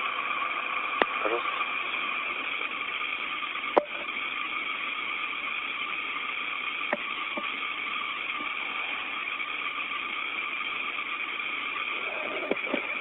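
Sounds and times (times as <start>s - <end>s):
radio static hiss: 0.0s - 5.8s, 6.6s - 13.0s
radio clicks: 1.0s - 1.5s, 12.3s - 12.9s.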